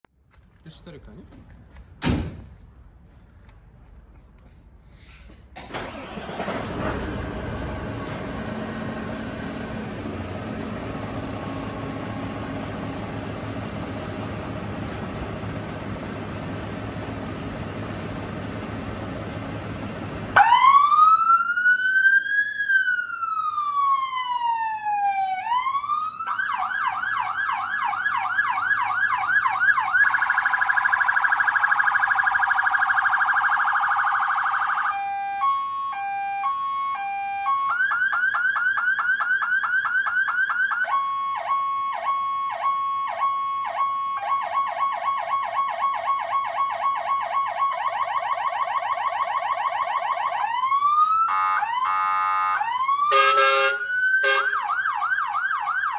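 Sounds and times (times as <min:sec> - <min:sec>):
truck engine running: 0:05.6 - 0:20.8
fire engine siren: 0:05.6 - 0:55.9.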